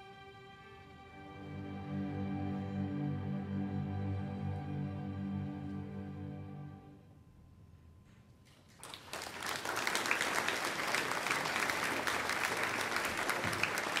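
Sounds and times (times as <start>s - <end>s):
audience applause: 8.7s - 14.0s.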